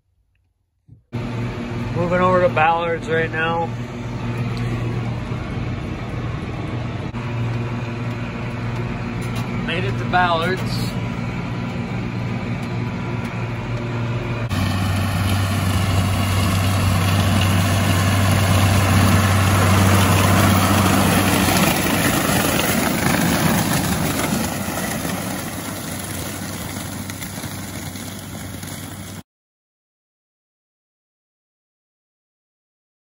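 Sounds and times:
tractor engine humming: 1.2 - 29.2
stalk chopper cutting corn stalks: 8.6 - 11.0, 11.7 - 29.2.

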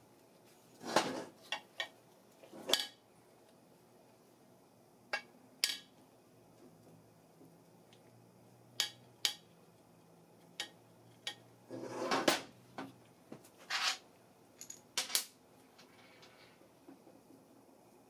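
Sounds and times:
metal parts clinking and knocking: 14.6 - 15.3.

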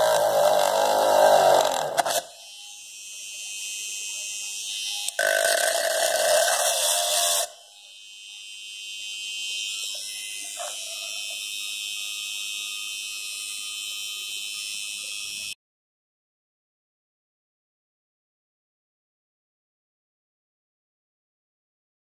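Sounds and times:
drill motor whining: 0.0 - 15.6.

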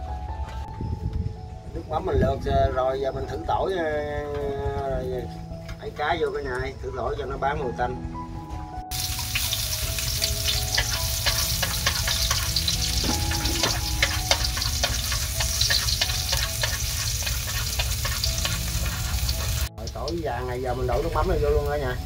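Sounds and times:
garlic sizzling in hot oil: 8.9 - 22.0.

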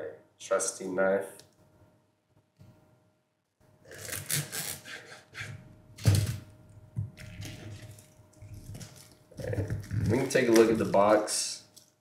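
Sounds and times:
knife slitting plastic wrap: 3.9 - 5.0, 7.4 - 11.3
plastic shrink-wrap crinkling: 7.2 - 12.0.

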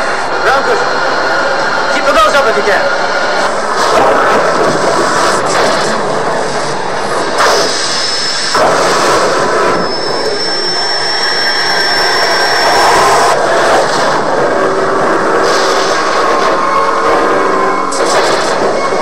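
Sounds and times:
spaceship engines rushing: 0.0 - 19.0
thin high whistle: 9.7 - 13.3.

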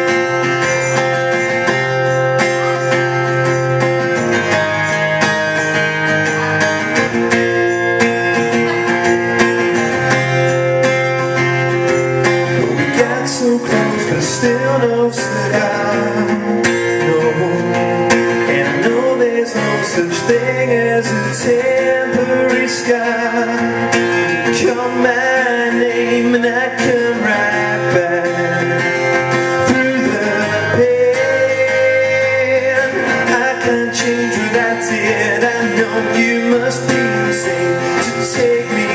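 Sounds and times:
acoustic guitar strumming chords: 0.0 - 38.9
man singing: 11.8 - 38.9.

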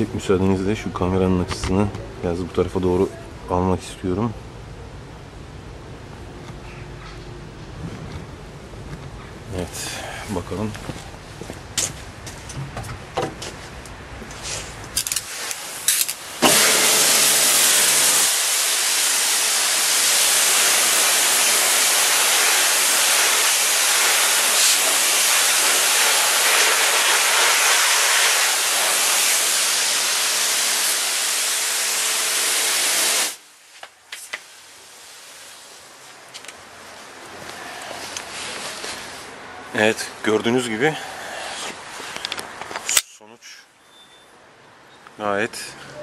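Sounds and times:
pressure washer spraying water: 15.0 - 33.4.

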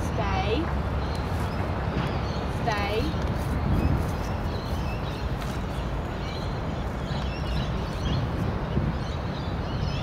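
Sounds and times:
low rumble of wind or traffic: 0.0 - 10.0.

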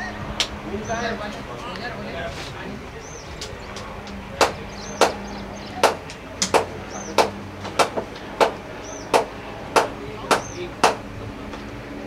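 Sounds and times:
sharp knocks: 3.7 - 5.2, 5.8 - 11.0.

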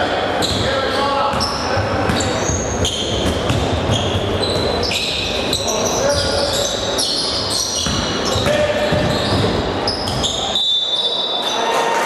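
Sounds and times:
sneakers squeaking: 0.0 - 11.8
murmur of voices: 0.0 - 12.0
basketball dribbling on hardwood: 7.8 - 9.6.

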